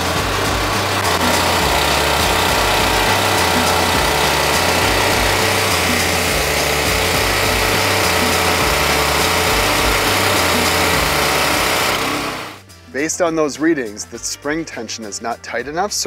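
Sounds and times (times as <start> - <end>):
pressure washer running: 0.0 - 12.6.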